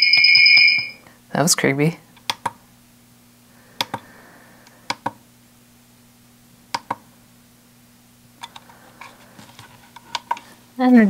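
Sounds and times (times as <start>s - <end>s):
plastic buttons clicking: 3.8s - 4.0s.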